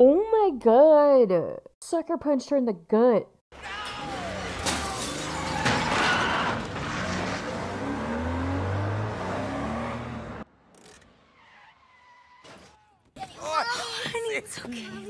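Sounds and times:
tyres skidding and squealing: 3.6s - 13.8s
car engine revving hard: 6.5s - 10.4s.

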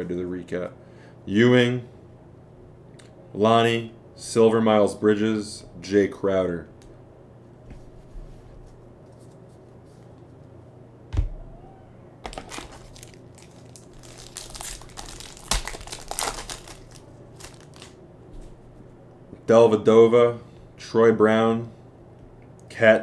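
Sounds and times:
foil wrapper crinkling: 12.2s - 18.0s.

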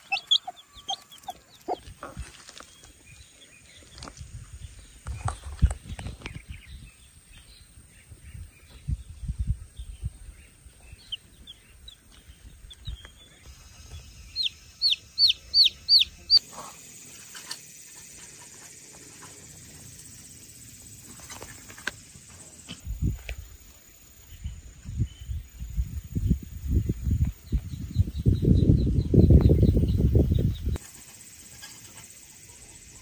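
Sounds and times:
baby chick peeping: 0.0s - 2.4s, 10.0s - 16.4s.

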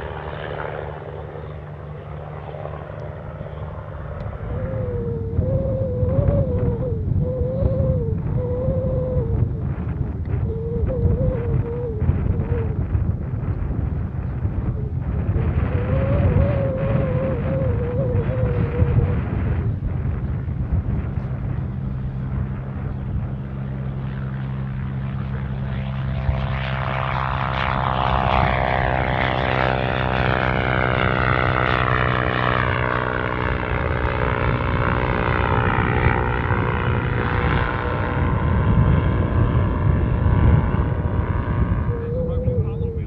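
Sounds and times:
aircraft engine at full power: 0.0s - 43.0s
propeller buzz: 0.0s - 43.0s.

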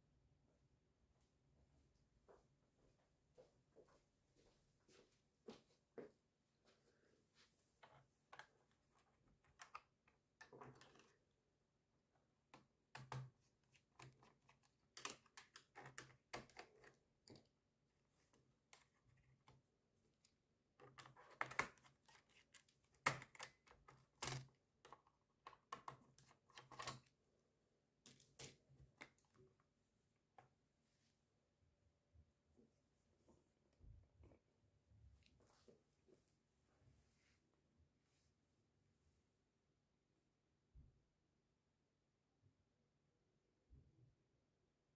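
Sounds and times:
plastic laptop cover clicks and snaps: 22.9s - 24.5s.

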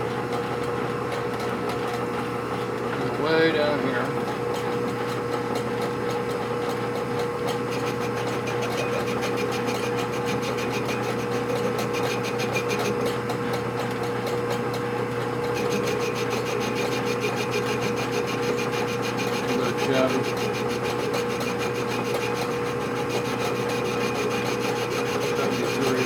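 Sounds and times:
lathe spindle whine: 6.3s - 26.0s
cutting tool rasping on metal: 7.4s - 14.8s, 15.4s - 26.0s.

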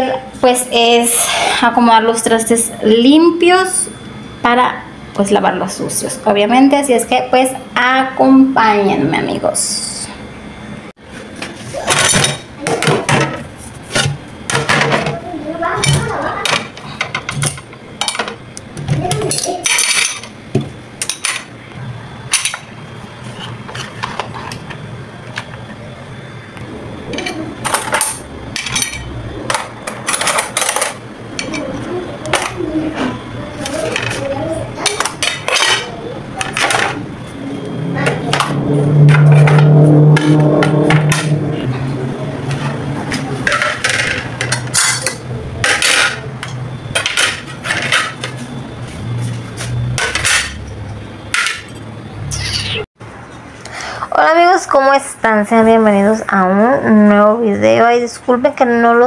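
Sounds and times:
dishes and cutlery clattering: 11.9s - 13.4s, 19.1s - 20.3s, 34.8s - 37.0s, 43.4s - 48.4s
metal cutlery clinking: 19.4s - 20.3s, 43.5s - 46.2s.

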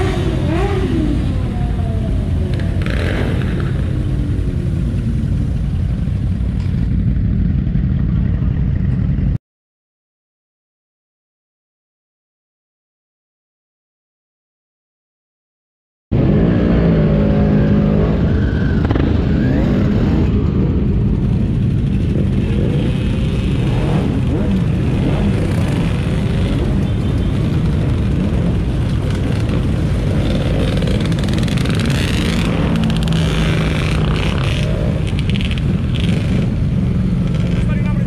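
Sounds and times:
quad bike engine running: 2.4s - 9.4s, 16.2s - 38.0s.

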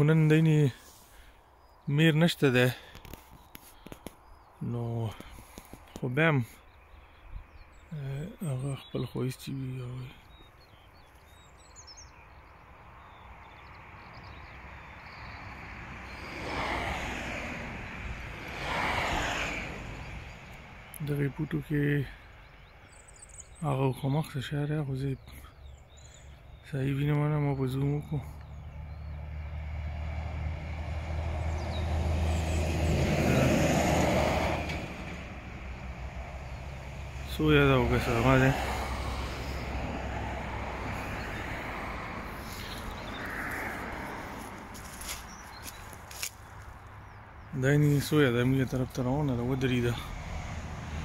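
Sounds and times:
road vehicle passing: 10.3s - 23.2s, 27.5s - 51.0s.

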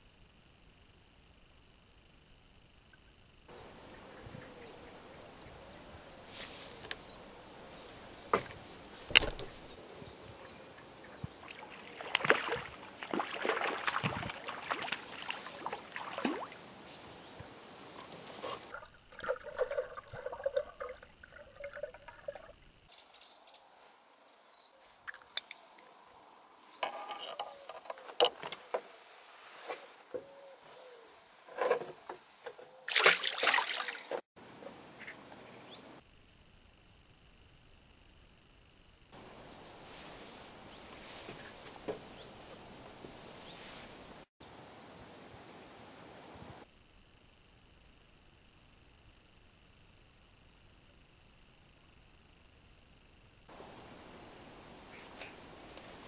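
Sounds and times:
faint steady hiss: 0.0s - 56.0s
faint knocks and water noises: 10.3s - 16.6s, 17.4s - 22.5s
fish splashing in water: 11.4s - 16.7s, 32.9s - 34.2s.

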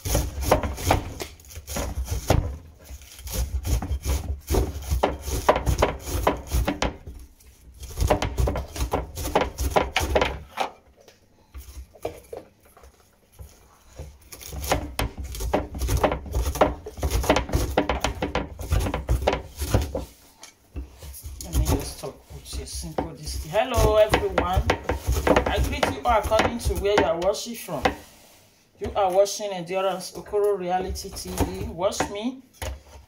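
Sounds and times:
cleaver chopping on wooden board: 0.0s - 2.6s, 3.2s - 7.1s, 7.8s - 10.5s, 14.3s - 20.1s, 22.8s - 28.0s, 30.9s - 32.2s.

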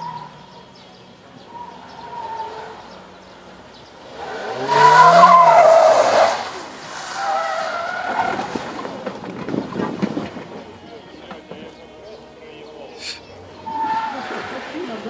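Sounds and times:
car engine revving: 1.5s - 8.9s
tyres squealing: 4.0s - 11.9s, 12.9s - 14.5s.

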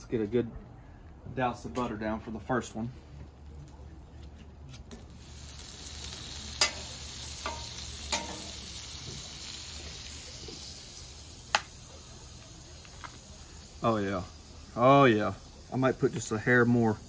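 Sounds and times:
butter sizzling on griddle: 2.6s - 17.0s
metal spatula clicking on griddle: 6.5s - 8.6s.

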